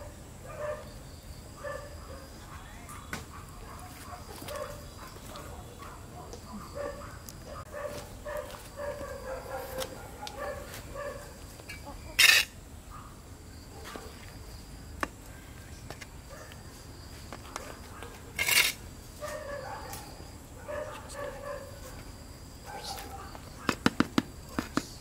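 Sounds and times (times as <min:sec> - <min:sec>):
trowel scraping soil: 0:12.1 - 0:12.6, 0:18.3 - 0:18.8.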